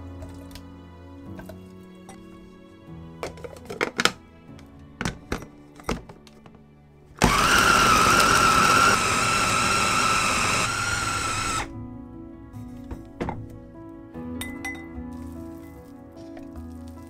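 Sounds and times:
food chopper motor whine: 0:07.2 - 0:11.7.

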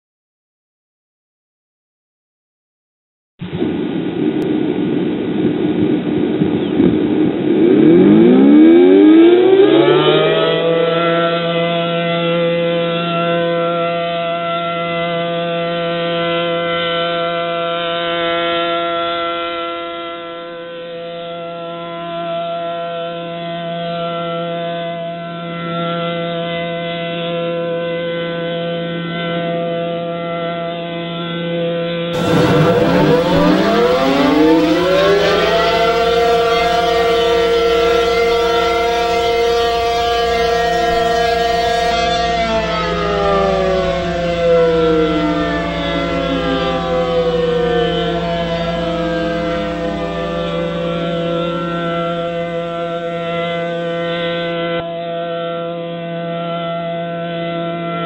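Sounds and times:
siren winding up: 0:07.6 - 0:11.4, 0:32.2 - 0:54.8
droning chord: 0:32.2 - 0:56.7.

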